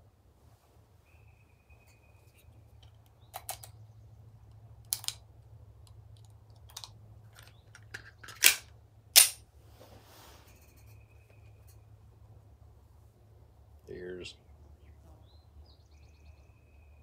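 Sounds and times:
cartridges clicking into magazine: 3.3s - 3.8s, 4.8s - 9.4s
pistol sharp clacks: 6.7s - 9.4s.

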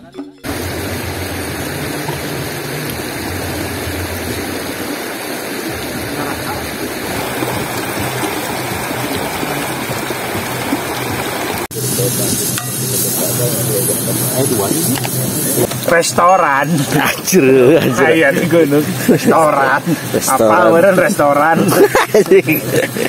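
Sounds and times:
bright hissy noise: 0.4s - 4.3s, 11.7s - 23.0s
river water rushing: 0.4s - 11.7s
indistinct voices: 11.8s - 21.6s.

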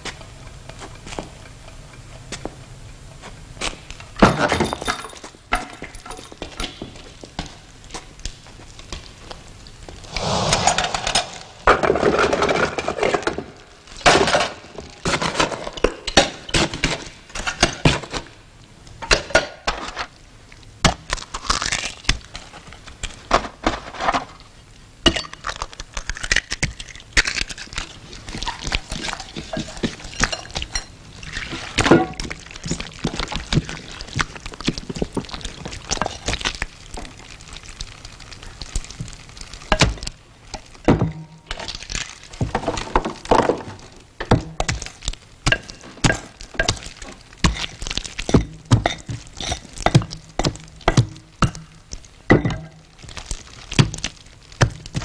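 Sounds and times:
coal crunching and scraping: 9.9s - 18.2s, 20.9s - 24.4s, 25.4s - 40.8s, 41.4s - 55.0s
egg breaking: 20.8s - 23.2s, 25.2s - 28.9s.

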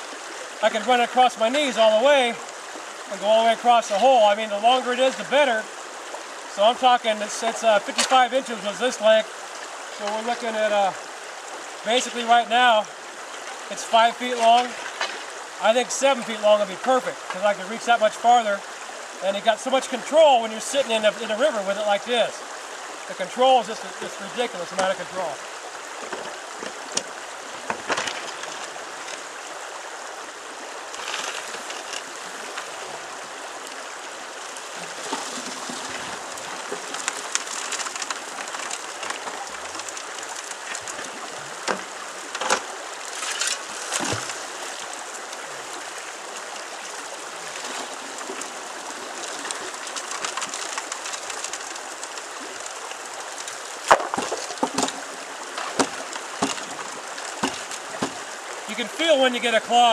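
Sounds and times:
river running over gravel: 0.0s - 59.9s
rock knocks and water splashes: 6.6s - 9.2s, 13.4s - 15.4s, 24.4s - 25.3s, 26.0s - 29.2s, 34.7s - 44.9s, 53.7s - 58.9s.

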